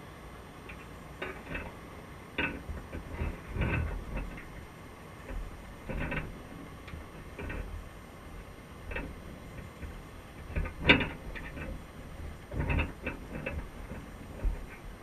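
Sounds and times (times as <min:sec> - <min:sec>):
underwater clicks and knocks: 0:05.3 - 0:07.8, 0:08.9 - 0:11.8, 0:12.4 - 0:15.0.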